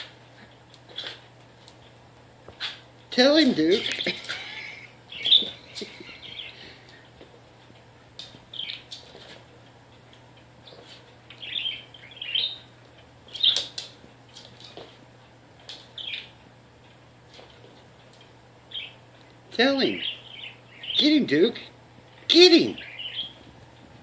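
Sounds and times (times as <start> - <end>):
budgerigar chirping: 3.8 - 6.6, 11.4 - 12.6, 18.7 - 19.0, 22.8 - 23.4.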